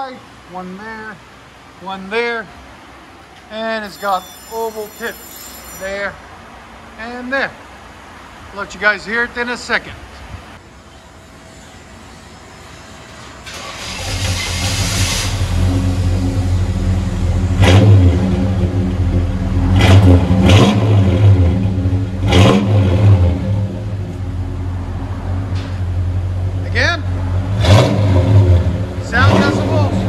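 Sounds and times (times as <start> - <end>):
car engine starting and revving: 13.4 - 30.0.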